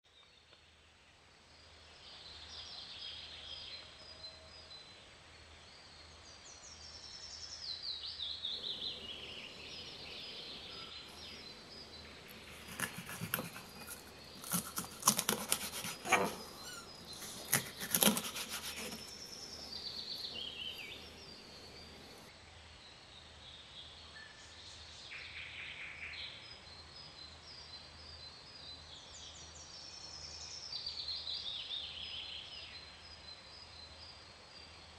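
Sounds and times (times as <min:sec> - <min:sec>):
birds chirping and trilling: 0:07.8 - 0:22.3
knife chopping on cutting board: 0:12.3 - 0:19.2.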